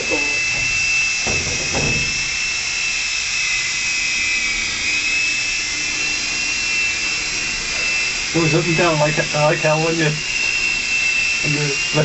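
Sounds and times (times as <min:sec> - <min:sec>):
rotors hissing: 0:00.0 - 0:02.9, 0:04.8 - 0:12.0
high-pitched electric motor whine: 0:00.0 - 0:12.0.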